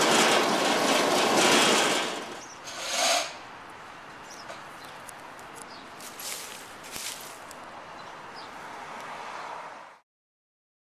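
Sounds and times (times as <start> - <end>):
bulb crusher grinding: 0.0 - 3.4.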